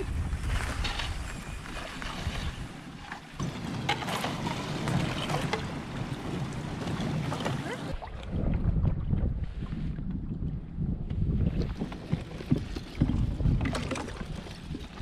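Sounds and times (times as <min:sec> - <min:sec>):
ice crunching and scraping on hull: 0:00.0 - 0:07.9, 0:11.2 - 0:15.0
wind buffeting microphone: 0:00.0 - 0:15.0.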